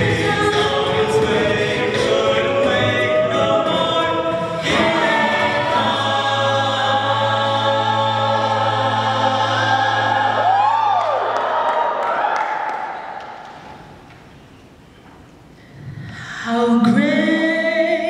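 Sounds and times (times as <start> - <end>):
a cappella choir singing: 0.0 - 11.2.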